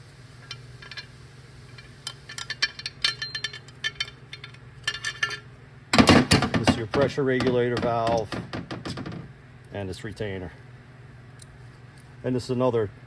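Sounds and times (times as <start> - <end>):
steady low hum: 0.0 - 13.0
light metallic clicks and clinks: 1.7 - 5.5.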